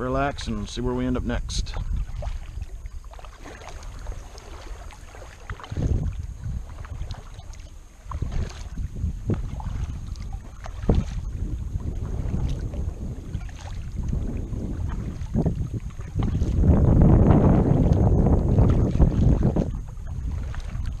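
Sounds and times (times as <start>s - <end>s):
kayak paddle strokes: 0.0s - 21.0s
wind rumble on microphone: 0.0s - 21.0s
water dripping off paddle: 1.6s - 16.8s.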